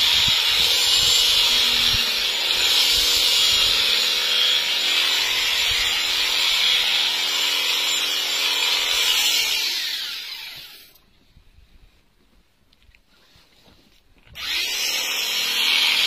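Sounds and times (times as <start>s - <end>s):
electric clippers buzzing: 14.4s - 16.0s.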